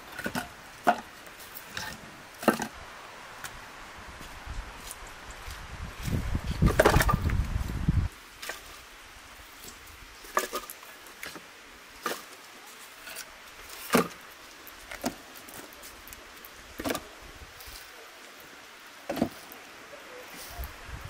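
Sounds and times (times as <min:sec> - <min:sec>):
wooden logs knocking: 0:00.0 - 0:02.8, 0:06.1 - 0:07.5, 0:10.3 - 0:12.3, 0:13.1 - 0:15.7, 0:16.8 - 0:17.1, 0:19.1 - 0:19.6.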